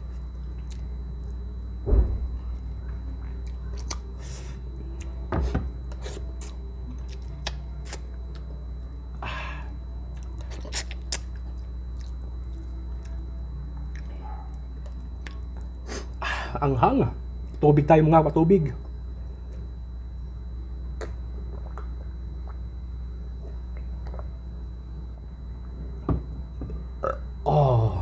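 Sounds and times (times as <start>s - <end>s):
low steady hum: 0.0s - 28.0s
chewing and lip smacks: 3.4s - 4.1s, 6.4s - 8.5s, 10.1s - 13.2s, 13.8s - 14.2s, 14.8s - 15.5s, 21.0s - 22.6s, 23.4s - 24.3s.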